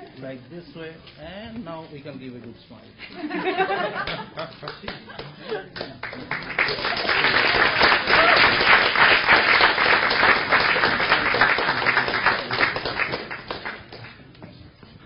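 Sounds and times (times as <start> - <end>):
audience applauding: 4.0 - 14.2.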